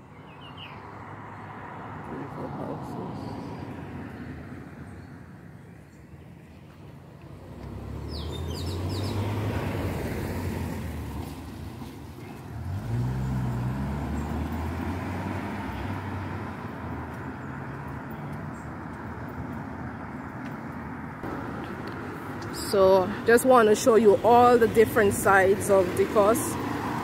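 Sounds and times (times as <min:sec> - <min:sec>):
bird chirping: 0:00.0 - 0:00.9, 0:08.0 - 0:09.3
cars passing on wet road: 0:00.7 - 0:05.5, 0:06.8 - 0:27.0.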